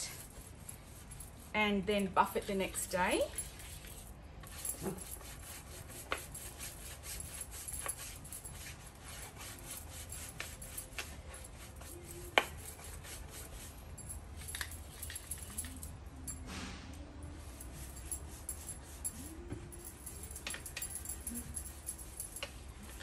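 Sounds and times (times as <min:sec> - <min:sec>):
brush scrubbing wax on wood: 0:04.7 - 0:13.8.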